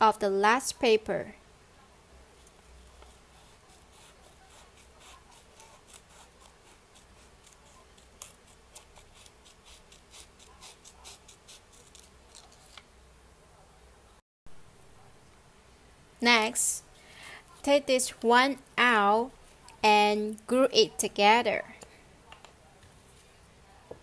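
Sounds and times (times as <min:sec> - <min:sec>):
scissors snipping paper: 0:02.9 - 0:12.8.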